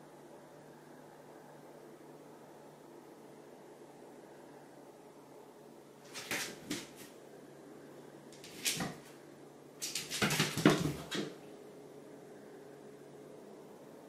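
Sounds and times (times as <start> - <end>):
cat paws thumping on hard floor: 6.1 - 7.1, 8.4 - 9.1, 9.8 - 11.4.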